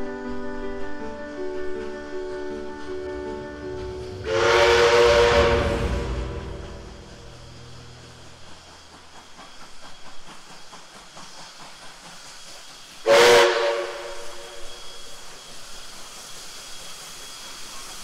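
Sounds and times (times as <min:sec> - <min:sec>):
steam locomotive approaching: 0:00.0 - 0:18.0
steam hiss: 0:00.2 - 0:18.0
steam whistle blast: 0:04.0 - 0:07.7, 0:13.0 - 0:15.3.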